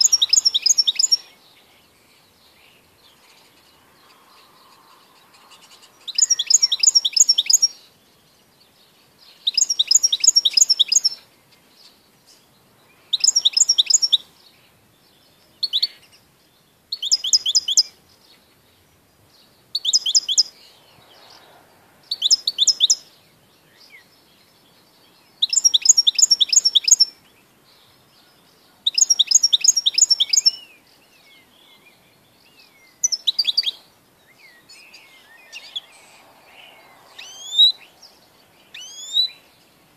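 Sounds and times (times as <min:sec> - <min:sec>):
goldfinch singing: 0:00.0 - 0:39.9.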